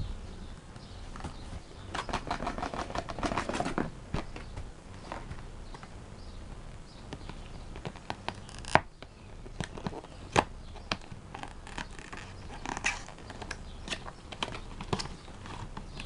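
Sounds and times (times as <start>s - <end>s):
plastic wrap crinkling and tearing: 9.5s - 15.8s.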